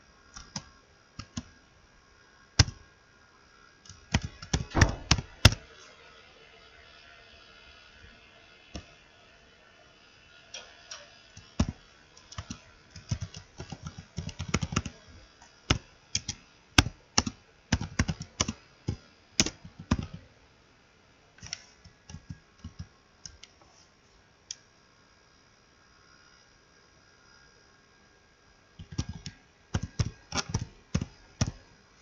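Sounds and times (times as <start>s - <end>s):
typing on a keyboard: 0.3s - 1.6s, 2.6s - 2.8s, 3.8s - 5.6s, 11.4s - 15.0s, 15.7s - 20.2s, 21.4s - 23.5s, 28.8s - 31.6s.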